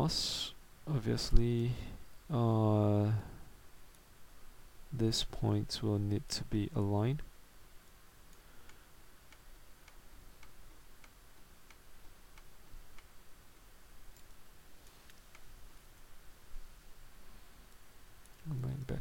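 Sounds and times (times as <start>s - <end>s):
low background hiss: 0.0s - 19.0s
faint ticking clicks: 7.2s - 16.1s, 17.6s - 18.9s.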